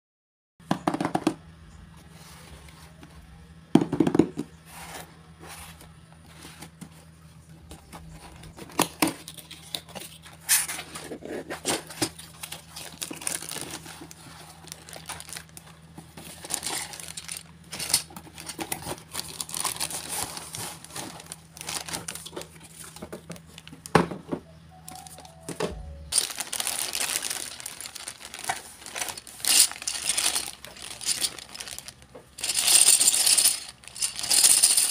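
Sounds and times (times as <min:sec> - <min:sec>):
faint low hum: 0:00.9 - 0:33.7
plastic bags crinkling: 0:11.6 - 0:23.9, 0:26.1 - 0:34.9.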